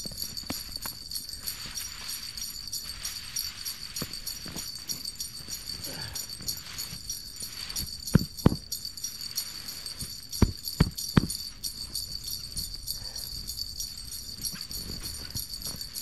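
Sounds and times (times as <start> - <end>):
high-pitched hiss: 0.0 - 16.0
dull thumps: 7.8 - 8.8, 10.0 - 12.7.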